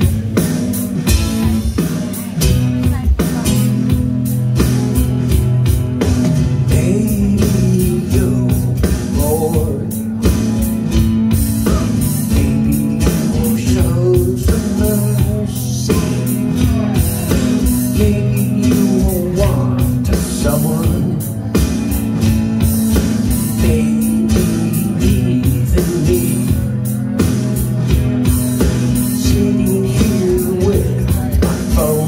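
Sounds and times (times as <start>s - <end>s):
drum beat and bass: 0.0s - 32.0s
electric guitar: 0.0s - 32.0s
man singing: 6.5s - 22.0s, 22.8s - 27.3s, 28.6s - 32.0s.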